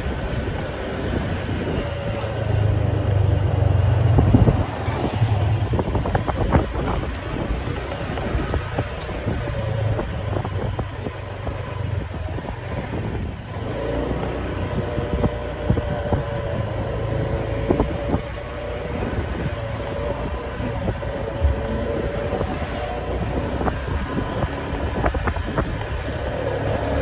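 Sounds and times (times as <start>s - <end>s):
steady engine whine: 0.0s - 27.0s
street traffic: 0.0s - 27.0s
wind buffeting microphone: 0.0s - 27.0s.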